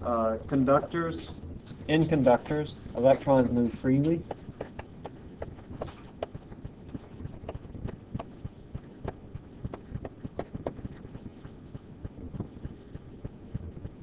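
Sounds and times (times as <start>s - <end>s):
stylus tapping on screen: 4.2s - 14.0s.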